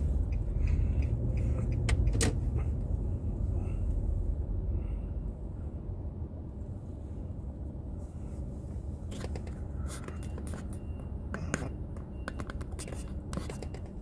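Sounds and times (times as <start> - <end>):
low rumble inside car: 0.0 - 14.0
sharp clicks and scrapes: 9.1 - 10.8.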